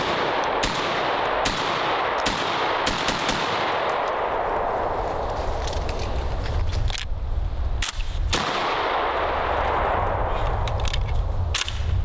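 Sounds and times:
shotgun shots: 0.0 - 4.0, 8.3 - 9.2
continuous rushing noise: 0.0 - 12.0.

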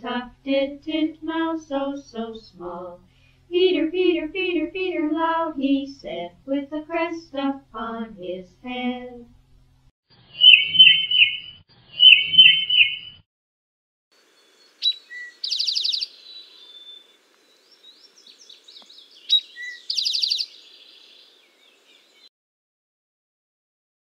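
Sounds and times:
titmouse whistling song: 10.4 - 13.2, 14.8 - 17.0, 18.7 - 20.6.

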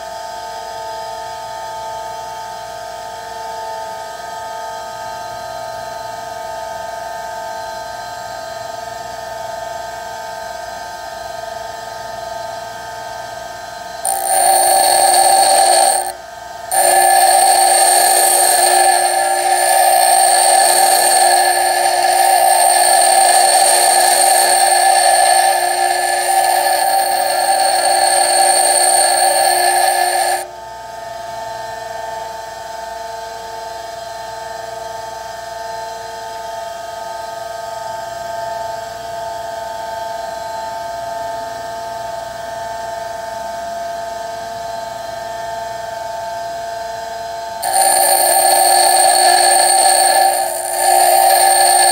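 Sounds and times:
bench grinder grinding drill bit: 14.0 - 30.5, 47.6 - 51.9
grinder running hum: 14.0 - 30.5, 47.6 - 51.9.

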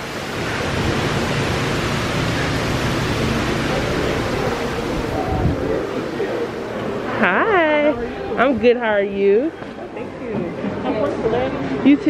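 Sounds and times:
waterfall splashing over rocks: 0.0 - 8.2
faint voices: 2.2 - 12.0.

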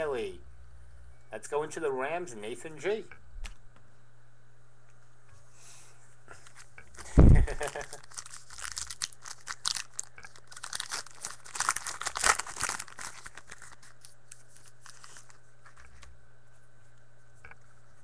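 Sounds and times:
foil wrapper tearing and crinkling: 6.9 - 16.1
cards being handled: 7.9 - 16.1.

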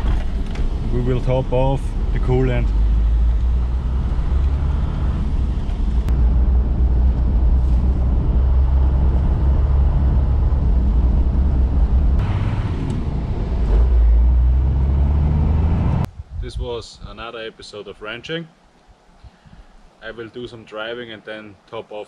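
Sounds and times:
diesel engine low rumble: 0.0 - 16.2.

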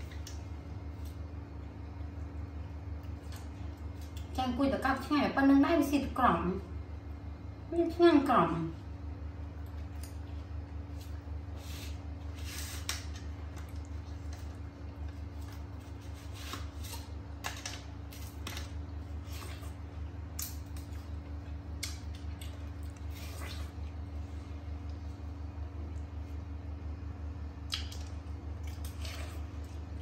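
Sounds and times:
steady low hum: 0.0 - 30.0
watermelon crunching: 9.6 - 25.2, 27.6 - 30.0.

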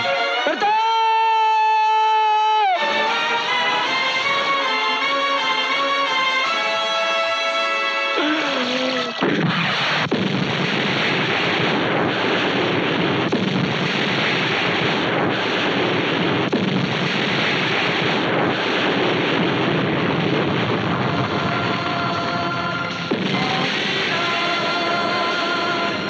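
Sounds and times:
explosions: 8.2 - 26.0.

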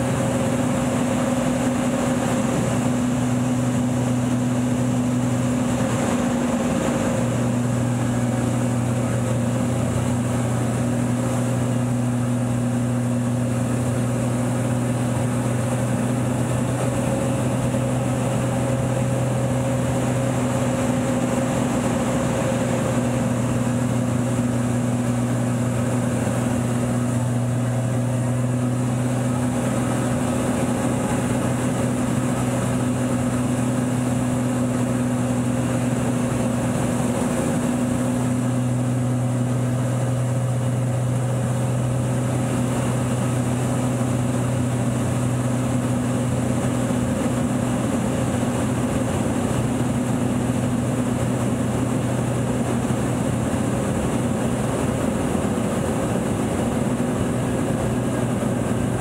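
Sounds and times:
plane engine and propeller drone: 0.0 - 59.0
rushing air: 50.9 - 59.0.

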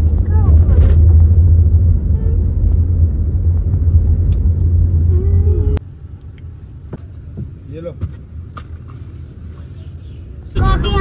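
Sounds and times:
car cabin road rumble: 0.0 - 11.0.

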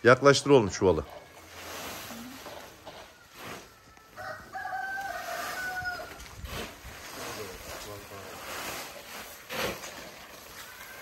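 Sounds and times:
rooster crowing: 4.0 - 6.3.

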